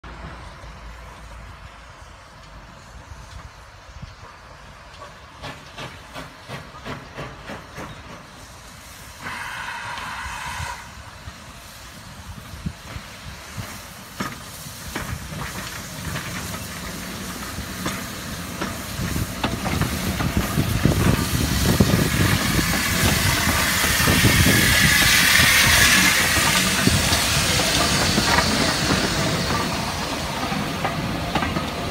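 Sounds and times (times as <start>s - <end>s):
train rumble: 0.0s - 31.9s
steam hissing: 0.1s - 31.9s
wheels clicking on rails: 12.5s - 31.9s.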